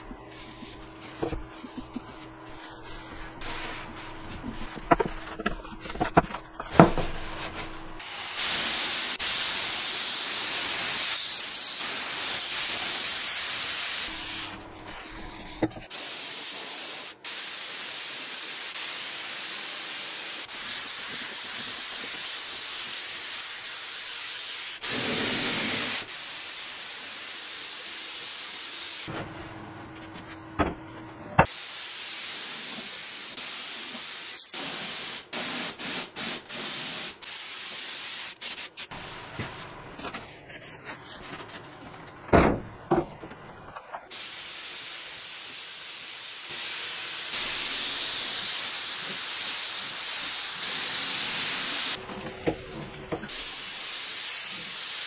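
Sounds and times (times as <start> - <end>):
spray gun hissing: 8.0 - 14.6, 15.9 - 29.1, 31.5 - 39.6, 44.1 - 52.0, 53.3 - 55.0.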